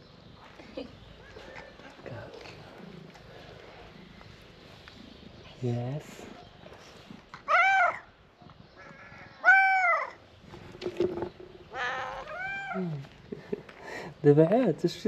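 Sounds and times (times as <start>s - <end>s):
cat meowing: 7.4s - 8.1s, 8.8s - 10.2s, 11.7s - 13.0s.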